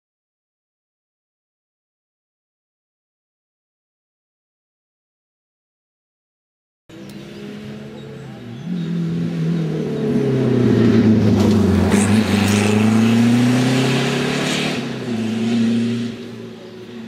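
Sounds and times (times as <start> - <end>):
rally car engine revving: 6.9 - 17.0.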